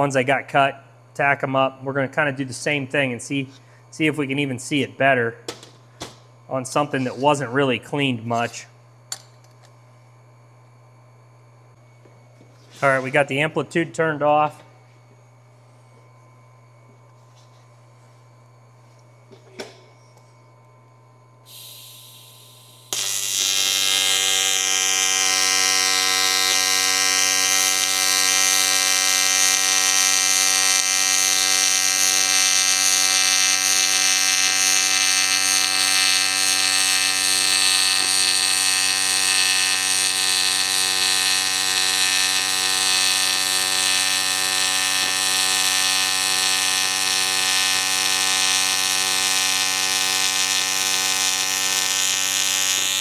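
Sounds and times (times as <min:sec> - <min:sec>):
welding arc buzzing: 0:21.2 - 0:53.0.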